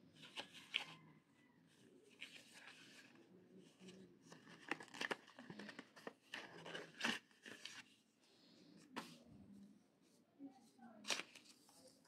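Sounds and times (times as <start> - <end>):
paper packaging rustling: 0.2 - 1.0, 2.1 - 7.9, 11.0 - 12.0.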